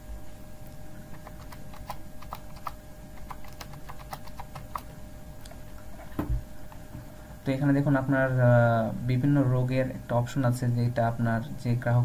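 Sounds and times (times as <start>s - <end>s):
keyboard keys clicking: 1.1s - 4.9s.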